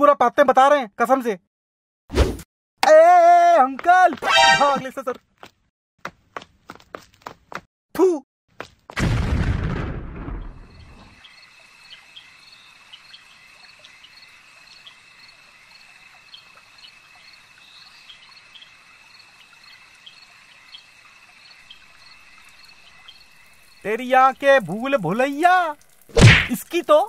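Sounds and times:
crickets trilling: 10.4 - 27.0.

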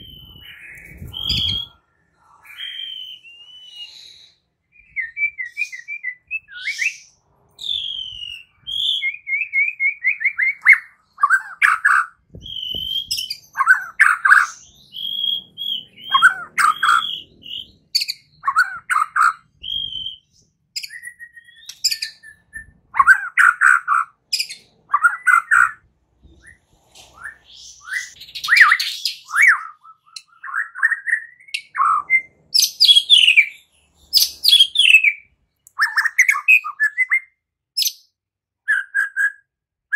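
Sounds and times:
bird singing whistles: 0.0 - 1.8, 2.4 - 25.8, 26.4 - 38.1, 38.7 - 39.5.

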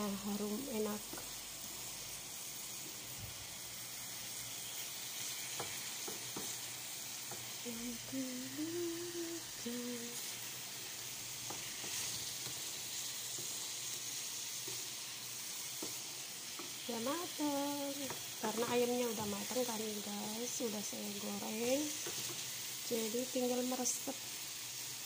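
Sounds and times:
chicken sizzling in a pan: 0.0 - 25.0
person humming: 7.6 - 10.3
wooden spatula scraping a pan: 11.4 - 13.6.

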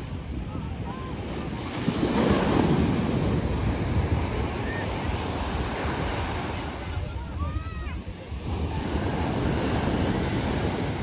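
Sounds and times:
sea waves breaking on beach: 0.0 - 11.0
wind buffeting microphone: 0.0 - 11.0.

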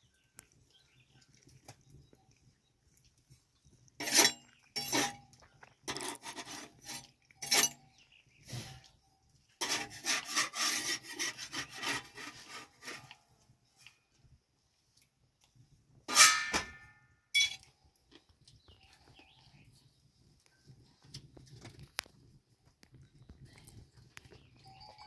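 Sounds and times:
dry rubbing and scraping: 4.0 - 7.8, 9.6 - 13.5.

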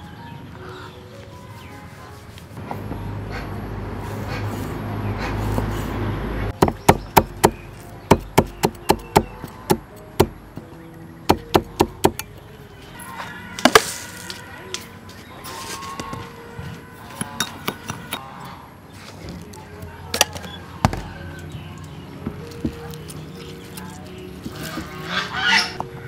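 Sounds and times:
knife chopping on wooden board: 6.6 - 10.4.

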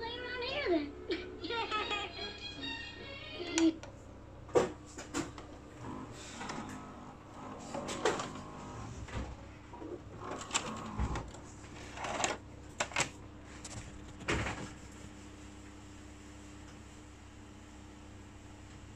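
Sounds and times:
vcr mechanism whirring and clicking: 2.4 - 14.8.

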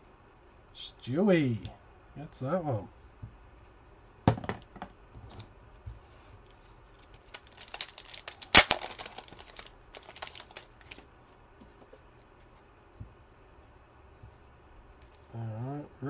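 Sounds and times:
foil wrapper crinkling: 7.0 - 11.1
wrapper ripping: 7.0 - 11.1.

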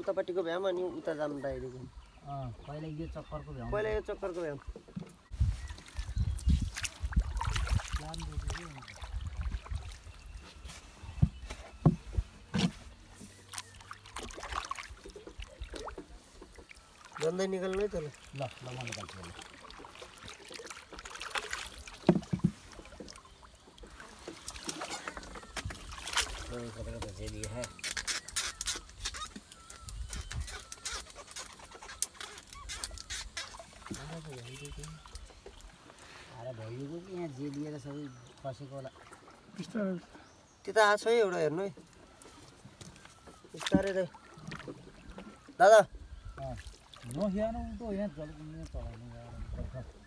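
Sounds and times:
birds chirping: 0.0 - 50.0
paddle swishing and splashing: 4.2 - 40.5, 41.7 - 47.4
paddle knocking against hull: 4.6 - 5.3, 11.1 - 13.0, 19.4 - 27.9, 42.7 - 45.4
wind on microphone: 5.2 - 10.4
fishing gear clicks and knocks: 24.3 - 35.6.

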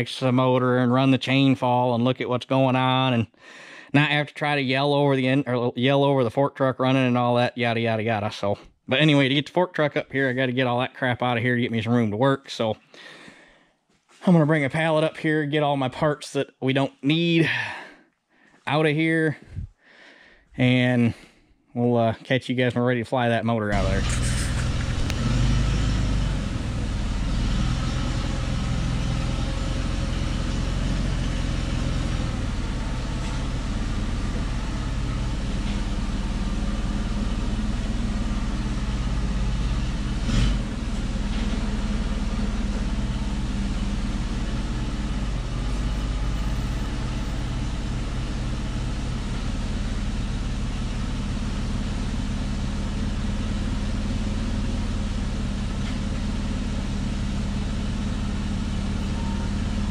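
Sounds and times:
forklift engine running: 23.7 - 59.9.

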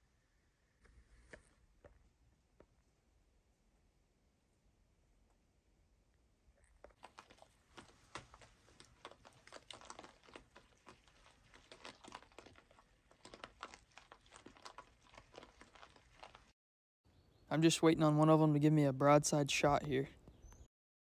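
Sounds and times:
hogs chewing corn: 6.6 - 16.6.

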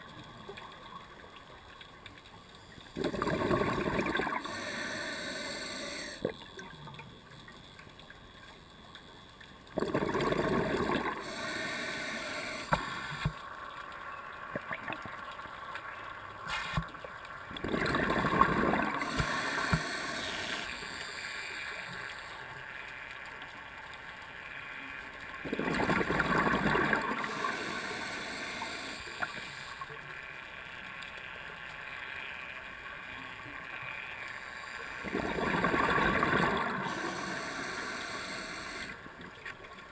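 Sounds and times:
faint clicks: 0.0 - 3.0, 6.2 - 9.8, 19.0 - 25.4, 28.5 - 35.1
scuba exhaust bubbling: 2.9 - 6.7, 9.7 - 13.4, 17.5 - 21.9, 25.4 - 29.5, 34.9 - 39.3
underwater hiss: 3.0 - 6.3, 9.8 - 13.4, 16.4 - 16.9, 17.6 - 22.6, 25.5 - 30.0, 34.4 - 39.1.

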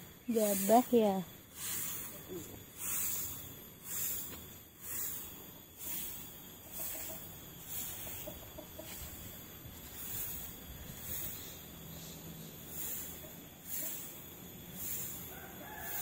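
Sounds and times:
rhythmic rustling hiss: 0.0 - 16.0
chickens clucking: 6.6 - 11.5.

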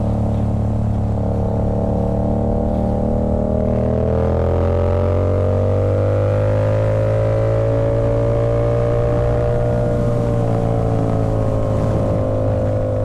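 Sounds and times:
motorcycle engine cruising: 0.0 - 13.0.

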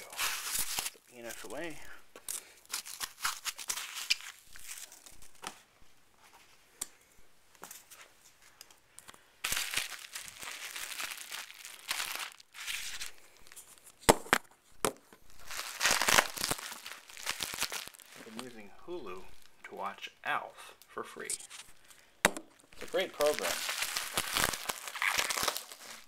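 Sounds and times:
plastic packing crinkling: 0.0 - 5.4, 9.4 - 14.5, 15.2 - 18.6, 21.5 - 26.0.

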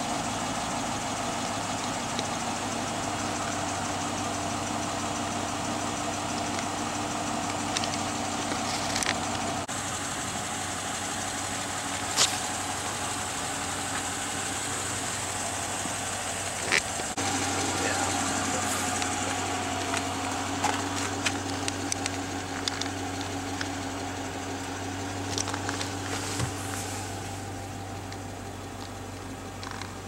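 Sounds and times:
car engine idling: 0.0 - 30.0
sharp clicks: 18.1 - 23.8.

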